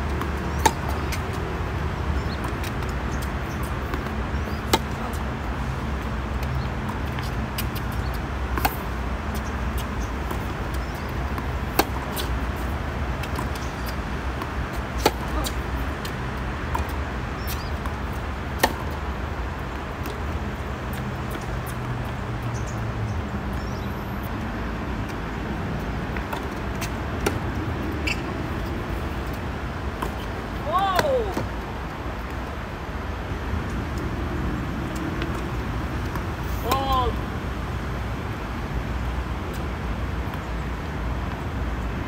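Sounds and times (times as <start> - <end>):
tennis ball bounces: 0.1 - 5.3, 6.3 - 19.0, 26.1 - 31.6.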